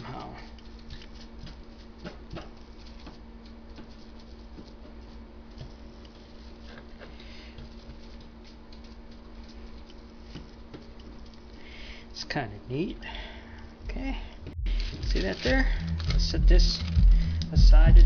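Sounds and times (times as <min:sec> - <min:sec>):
steady low hum: 0:00.0 - 0:18.0
sponge brush tapping paper: 0:00.5 - 0:11.4.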